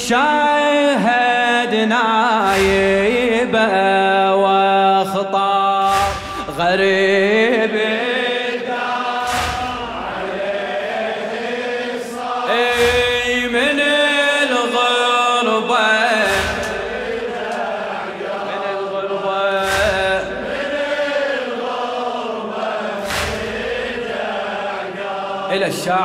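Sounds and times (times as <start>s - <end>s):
men chanting a lament: 0.0s - 26.0s
chest-beating thuds: 2.4s - 3.4s, 5.8s - 6.9s, 9.1s - 11.6s, 12.4s - 14.0s, 16.0s - 18.4s, 19.6s - 21.3s, 22.9s - 24.8s.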